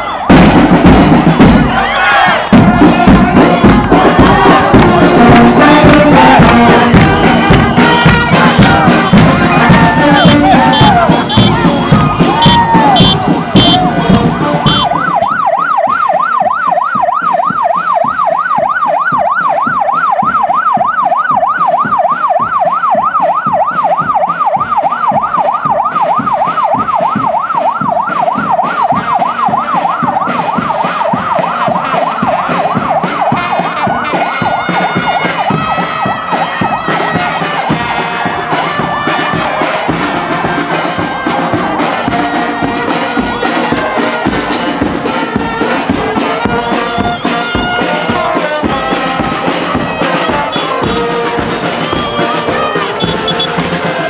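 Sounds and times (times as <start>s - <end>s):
brass horns playing: 0.0s - 16.2s, 28.2s - 54.0s
marching band drumbeat: 0.0s - 54.0s
warbling siren: 2.5s - 54.0s.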